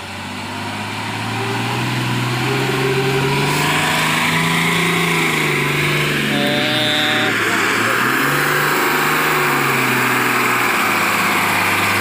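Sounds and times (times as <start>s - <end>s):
truck diesel engine running: 0.0s - 12.0s
brief high-pitched tone: 6.3s - 7.5s.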